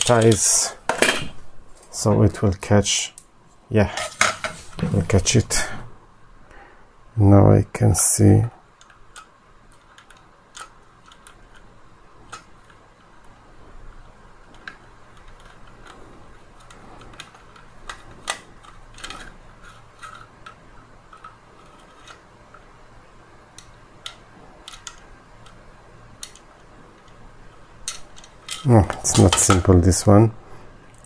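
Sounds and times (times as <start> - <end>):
faint steady hum: 0.0 - 31.0
plastic parts clicking and tapping: 8.8 - 13.4, 14.4 - 22.7, 23.5 - 27.2, 27.8 - 29.8.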